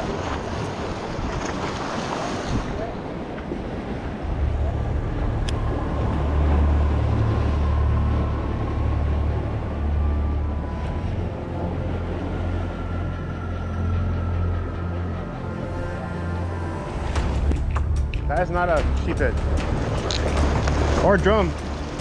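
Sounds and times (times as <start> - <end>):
waves washing against rocks: 0.0 - 8.2, 18.2 - 22.0
wind on microphone: 0.0 - 13.3
steady low rumble: 3.9 - 22.0.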